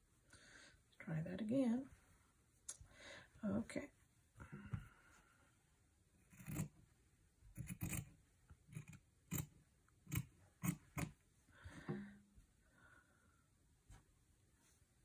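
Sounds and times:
scissors snipping fabric: 0:06.2 - 0:06.8, 0:07.5 - 0:11.2.

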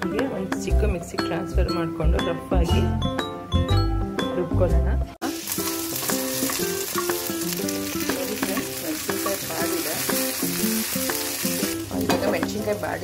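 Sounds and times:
chillies sizzling in a pan: 0:05.2 - 0:13.0.

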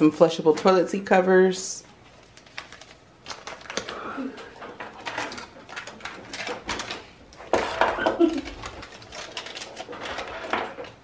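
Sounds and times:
packets rustling and clicking: 0:02.0 - 0:11.0
items clattering: 0:02.2 - 0:11.0.

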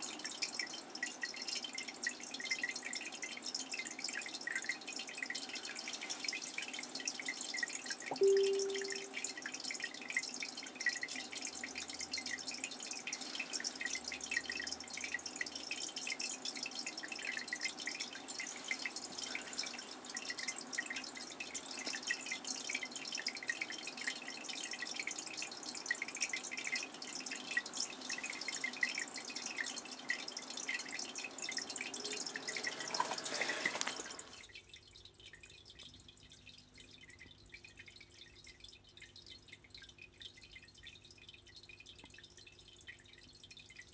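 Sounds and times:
water dripping and trickling: 0:00.0 - 0:43.9
faint steady hum: 0:03.6 - 0:32.8.

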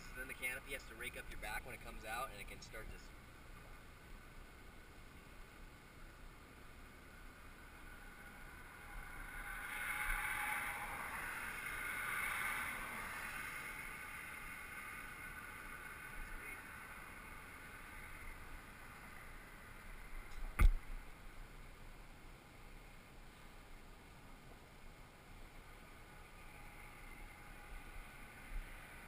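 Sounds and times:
vehicle passing: 0:06.9 - 0:20.3, 0:25.5 - 0:29.0
sharp knock: 0:20.5 - 0:20.8.

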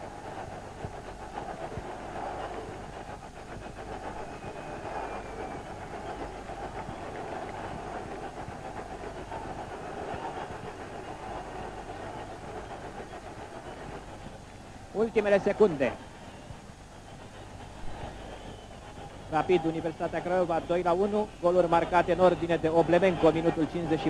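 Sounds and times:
faint low hum: 0:00.0 - 0:24.0
stadium crowd roaring: 0:03.9 - 0:13.8.

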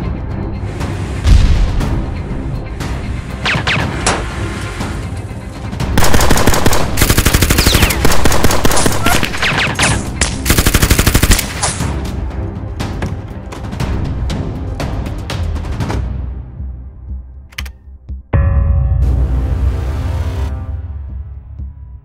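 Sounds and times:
background music: 0:00.0 - 0:22.0
automatic rifle fire: 0:06.0 - 0:09.8.

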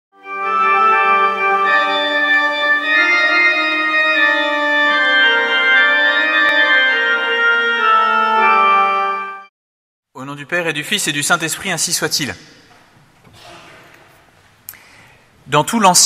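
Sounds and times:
organ chords: 0:00.2 - 0:09.5.

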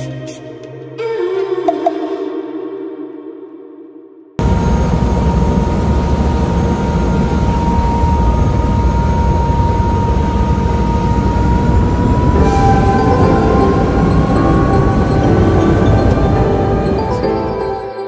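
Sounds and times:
helicopter engine and rotor: 0:04.4 - 0:17.8.

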